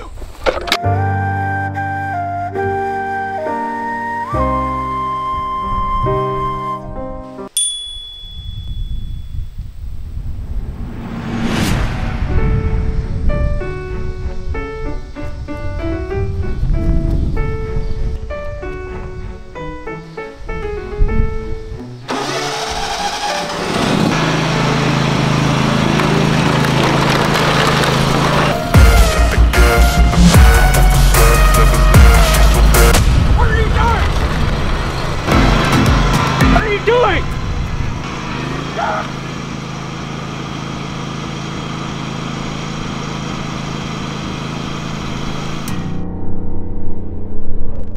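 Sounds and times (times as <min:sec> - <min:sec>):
background music with piano: 0:00.8 - 0:07.5, 0:12.2 - 0:22.1
lawn mower engine running: 0:22.0 - 0:31.3, 0:33.9 - 0:46.0.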